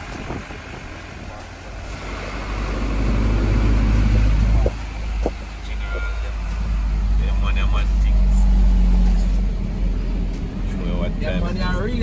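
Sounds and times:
vehicle engine and road noise: 0:00.0 - 0:12.0.

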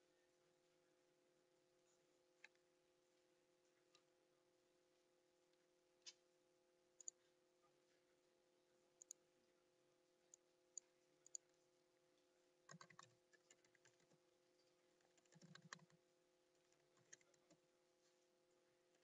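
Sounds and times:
typing on computer keyboard: 0:12.7 - 0:14.2, 0:15.0 - 0:16.0, 0:16.6 - 0:17.6.

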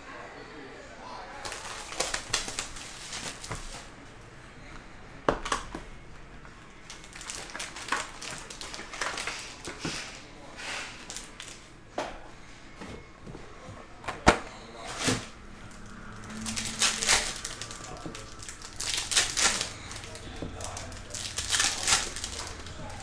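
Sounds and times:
plastic wrap crinkling: 0:01.4 - 0:03.9, 0:06.8 - 0:11.6, 0:14.9 - 0:23.0.

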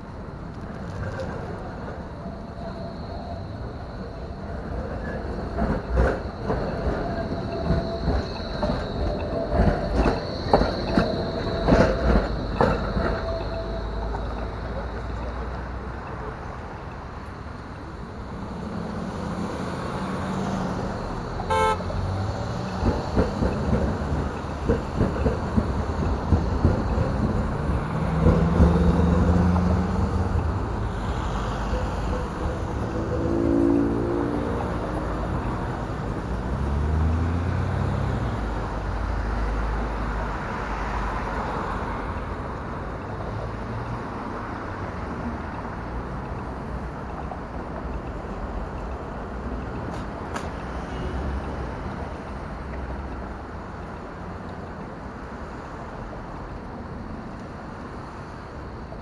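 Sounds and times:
close vehicle engine rumbling: 0:00.0 - 0:56.5
passing cars: 0:00.0 - 0:59.0
street traffic: 0:00.0 - 0:59.0
vehicle horn toot: 0:21.5 - 0:21.9.

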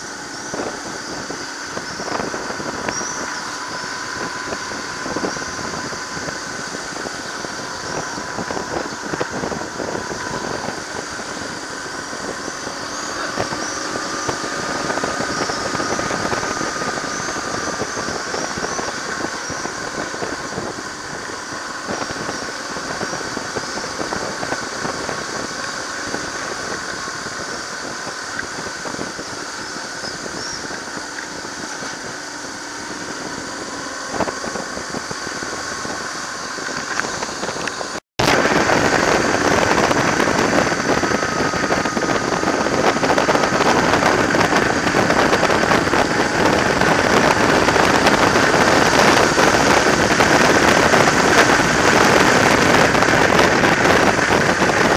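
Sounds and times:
motorcycle engine running: 0:00.0 - 0:54.9
wind noise: 0:00.0 - 0:54.9.

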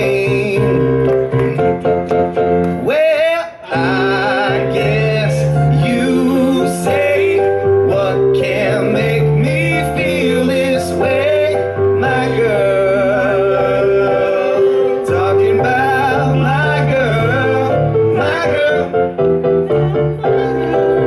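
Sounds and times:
mixed choir singing in harmony: 0:20.2 - 0:21.0.

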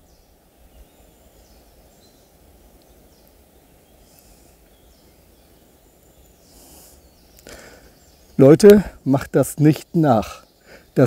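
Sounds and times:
faint short bird calls: 0:06.3 - 0:09.0.

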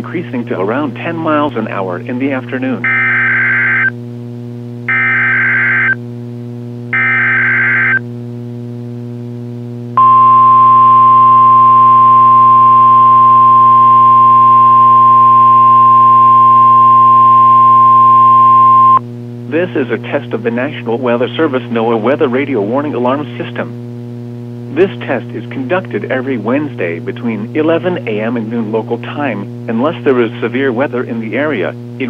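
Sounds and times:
low radio hum: 0:00.0 - 0:32.0
steady alarm tone: 0:02.8 - 0:03.9, 0:04.9 - 0:06.0, 0:06.9 - 0:08.0, 0:10.0 - 0:19.0.

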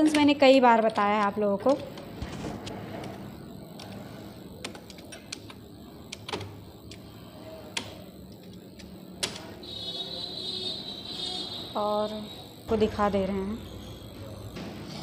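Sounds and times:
computer keys clicking: 0:00.0 - 0:09.6
faint high whine: 0:01.6 - 0:15.0.

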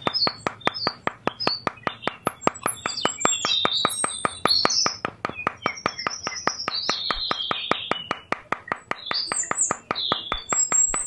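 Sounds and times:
fast ticking beat: 0:00.0 - 0:11.0
high chirping sounds: 0:00.0 - 0:11.0.

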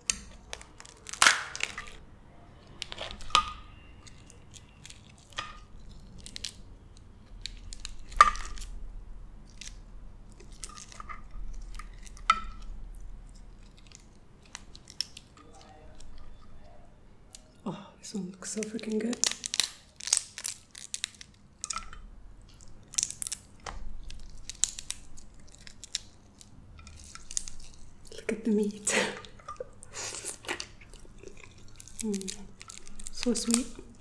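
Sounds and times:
crab shell snapping: 0:00.0 - 0:02.0, 0:19.2 - 0:27.9, 0:29.2 - 0:34.0
wet clicks and crunches: 0:00.0 - 0:02.0, 0:02.6 - 0:08.8, 0:09.4 - 0:17.5, 0:18.4 - 0:34.0.

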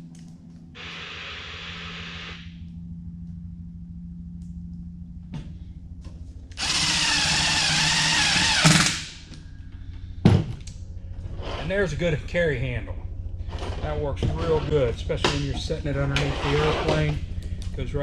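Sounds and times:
cordless drill driving screw: 0:06.6 - 0:09.1.

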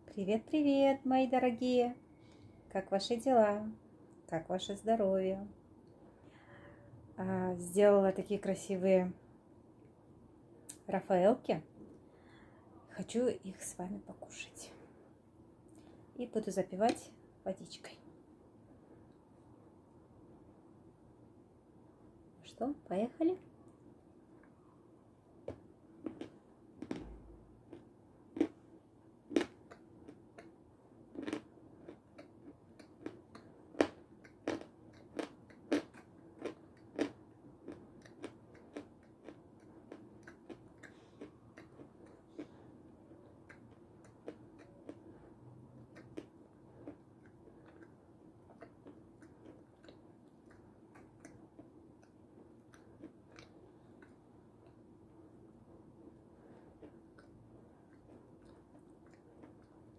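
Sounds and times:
close chewing with crunchy clicks: 0:25.4 - 0:28.7, 0:29.3 - 0:55.3, 0:56.0 - 0:59.9.

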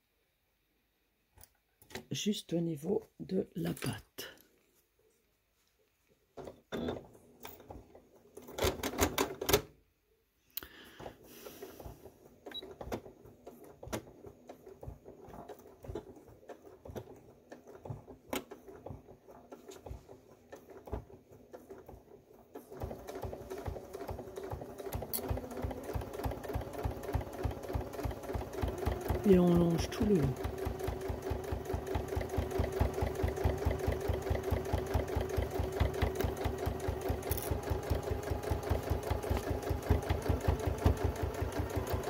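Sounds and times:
sewing machine stitching: 0:06.4 - 0:09.7, 0:10.8 - 0:42.0.

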